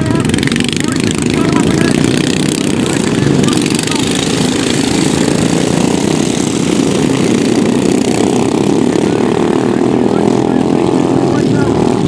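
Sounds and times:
lawn mower engines racing: 0.0 - 12.0.

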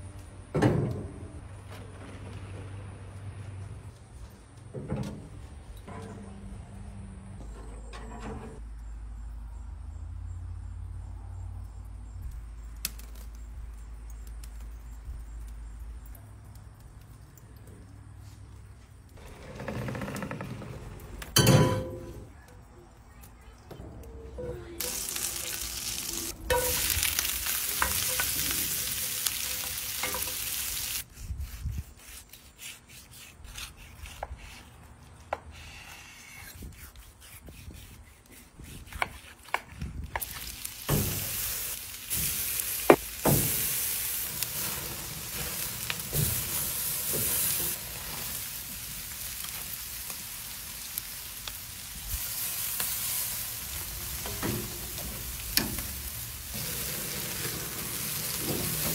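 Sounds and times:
food sizzling in skillet: 24.8 - 31.0, 40.2 - 58.9.

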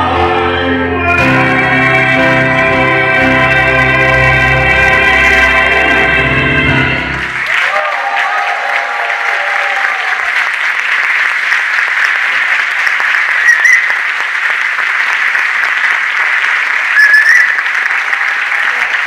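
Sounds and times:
audience applauding: 1.3 - 19.0
high-pitched calls: 13.4 - 14.0, 17.0 - 17.7.

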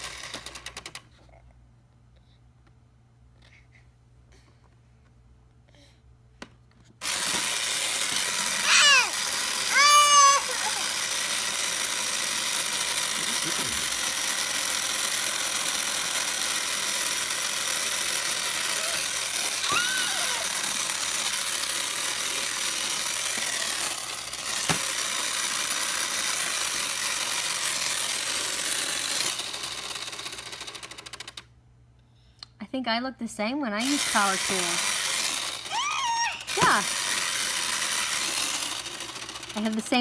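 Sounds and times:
toy saw buzzing whir: 0.0 - 1.0, 7.0 - 31.5, 33.8 - 40.0.

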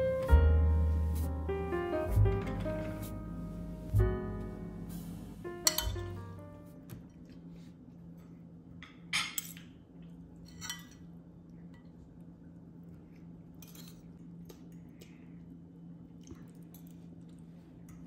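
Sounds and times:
cutlery and dishes clinking: 5.7 - 6.1, 9.1 - 9.7, 10.5 - 11.1, 13.6 - 14.1.

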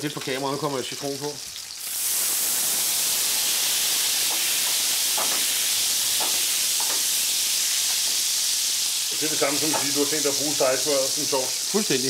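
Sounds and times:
butter sizzling in a frying pan: 0.0 - 12.0.

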